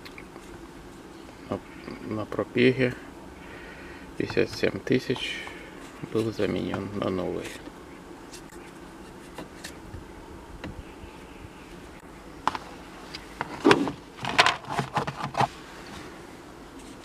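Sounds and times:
faint hum: 0.0 - 17.0
knocks and rustles of handling: 12.4 - 16.1.

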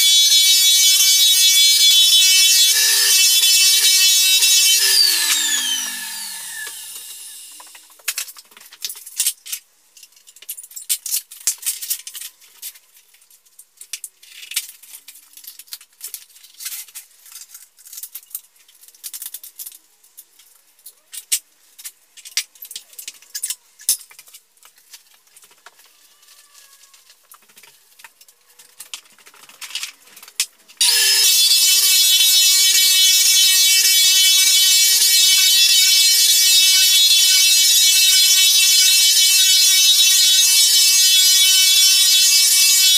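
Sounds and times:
floor sander motor running: 0.0 - 7.6, 30.8 - 42.9
floor sander motor winding down: 0.0 - 7.6, 30.8 - 42.9.

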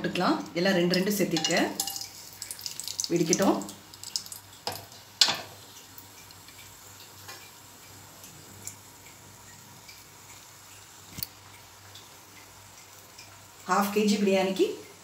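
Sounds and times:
spices crackling in hot oil: 0.0 - 15.0.

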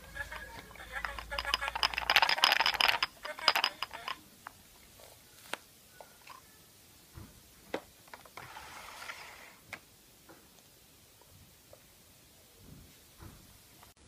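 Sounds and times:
plastic eggs clicking and tapping: 0.0 - 4.6.

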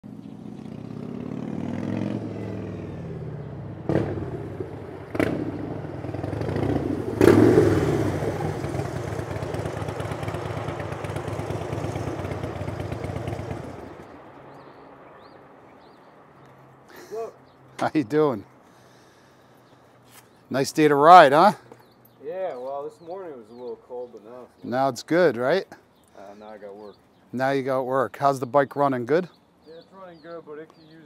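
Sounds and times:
motorcycle engine running: 0.1 - 14.1
exhaust pops: 3.8 - 14.0
man talking: 17.0 - 18.5, 20.5 - 21.6, 22.2 - 31.0.

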